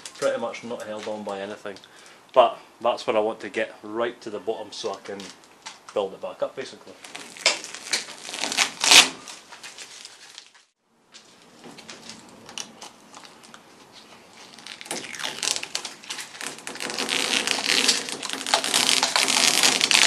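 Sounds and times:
tape peeling and crinkling: 7.0 - 20.0.

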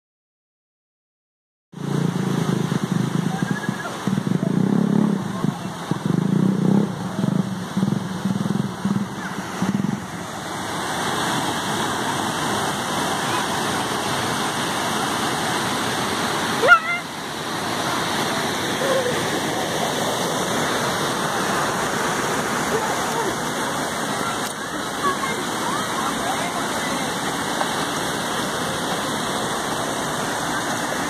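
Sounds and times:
motorcycle engine: 1.8 - 24.3
floodwater rushing: 1.8 - 31.0.

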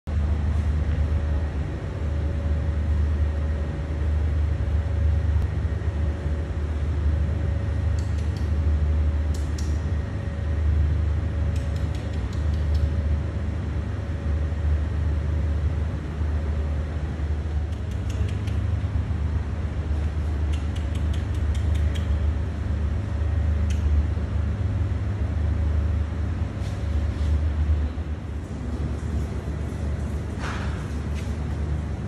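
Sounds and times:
faint steady hum: 0.1 - 32.0
light clicks: 7.9 - 8.6, 9.3 - 9.9, 11.5 - 13.0, 17.7 - 18.8, 20.4 - 22.3, 23.6 - 24.0.

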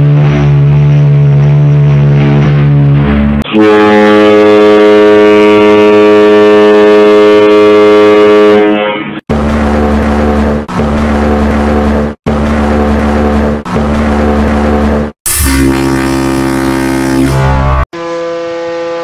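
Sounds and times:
ship's horn: 0.0 - 10.6, 11.2 - 19.0
higher-pitched ship horn blast: 3.4 - 9.2, 15.3 - 19.0
deep ship whistle: 3.5 - 9.0, 15.4 - 19.0.

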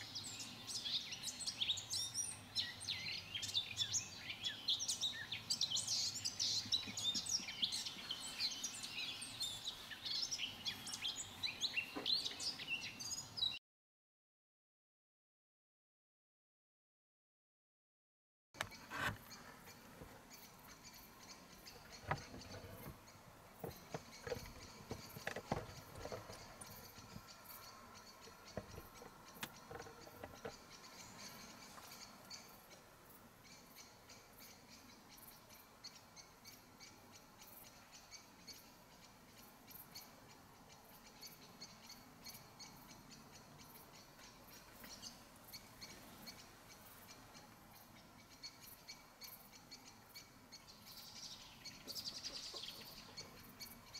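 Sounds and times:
soft knocks and rustles: 21.8 - 23.0, 23.6 - 27.3.

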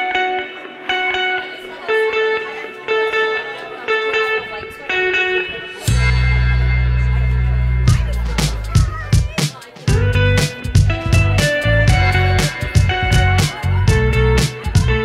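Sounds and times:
plucked guitar-like music: 0.0 - 15.0
deep sustained bass tones: 5.9 - 8.4.

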